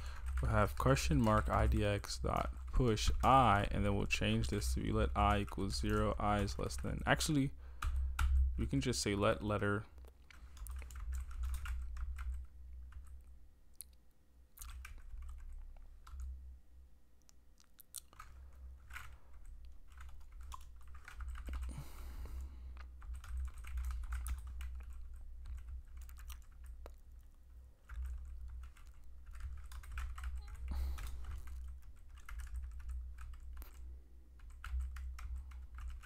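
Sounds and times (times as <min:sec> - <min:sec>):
typing on computer keyboard: 0:00.1 - 0:03.4, 0:07.8 - 0:08.6, 0:10.3 - 0:13.2, 0:14.6 - 0:16.3, 0:18.1 - 0:21.8, 0:22.9 - 0:26.8, 0:27.8 - 0:33.8, 0:34.4 - 0:36.0.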